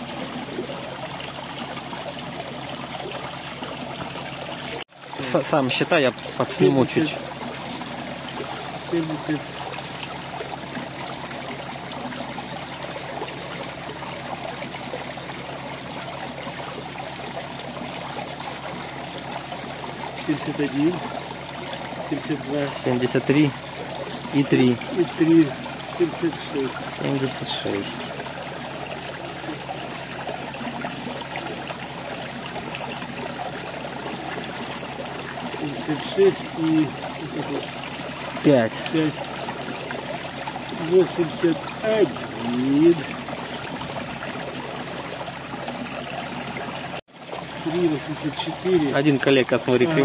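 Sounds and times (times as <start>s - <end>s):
water running into a tank: 0.0s - 50.0s.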